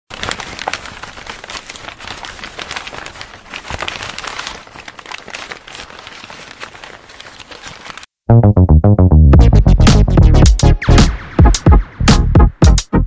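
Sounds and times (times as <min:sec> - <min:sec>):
dense crackling and crinkling: 0:00.1 - 0:08.2.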